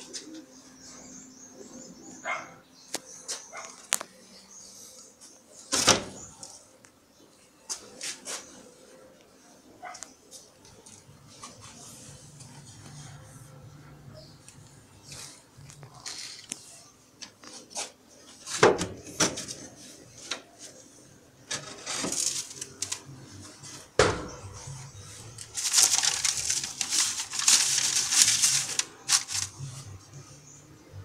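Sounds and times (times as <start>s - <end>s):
newspaper rustling: 21.5s - 23.8s, 25.1s - 30.0s.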